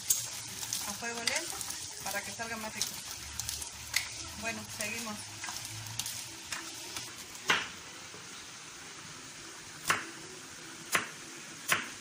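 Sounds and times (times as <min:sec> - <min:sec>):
rice sizzling in oil: 0:00.0 - 0:12.0.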